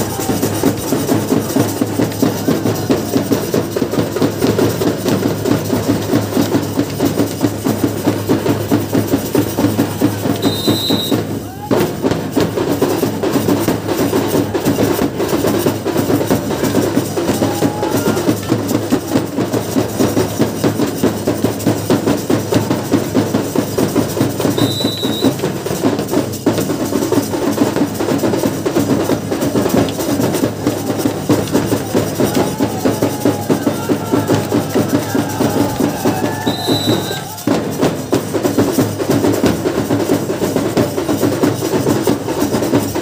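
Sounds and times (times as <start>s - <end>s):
drums beating fast rhythm: 0.0s - 43.0s.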